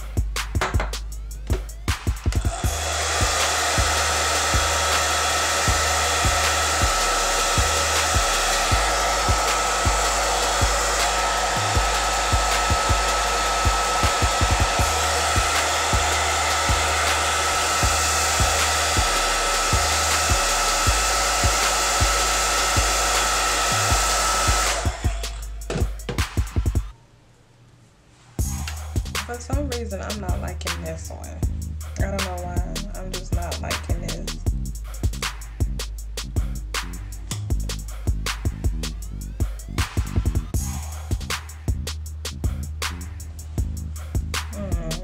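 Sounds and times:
background music bass line: 0.0s - 26.9s, 28.4s - 45.0s
hair dryer blowing: 1.5s - 26.9s, 33.3s - 34.3s, 37.3s - 41.6s.

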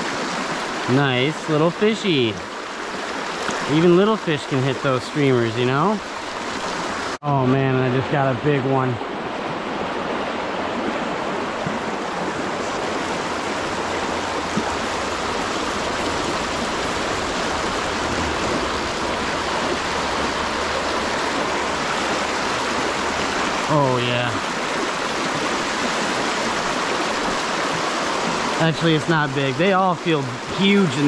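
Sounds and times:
stream rushing: 0.0s - 31.0s.

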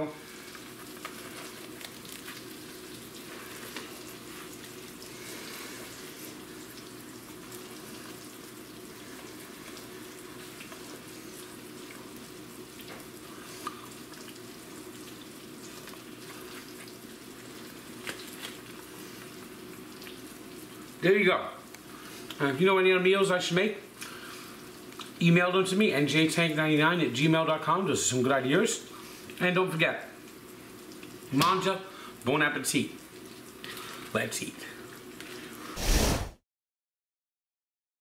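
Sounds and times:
food sizzling in a frying pan: 0.0s - 21.0s, 30.1s - 31.4s.

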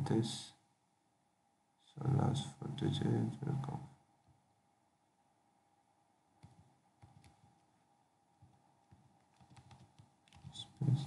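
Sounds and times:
keyboard typing: 6.4s - 7.6s, 8.4s - 10.9s.

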